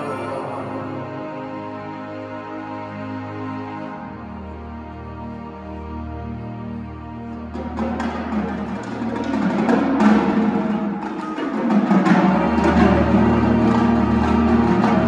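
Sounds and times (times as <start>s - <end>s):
drum and mallet strikes: 7.6s - 15.0s.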